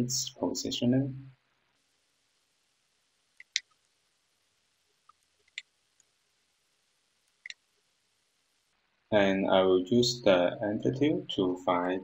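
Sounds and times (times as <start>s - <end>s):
faint background hiss: 0.0s - 12.0s
computer mouse clicks: 3.4s - 3.9s, 5.0s - 6.1s.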